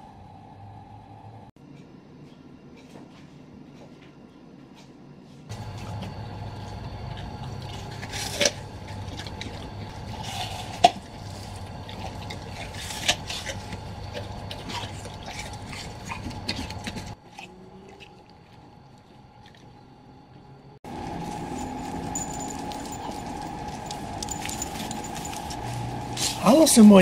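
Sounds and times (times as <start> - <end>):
steady low hum: 0.0 - 27.0
dog chewing a ball: 5.6 - 19.6, 20.9 - 26.4.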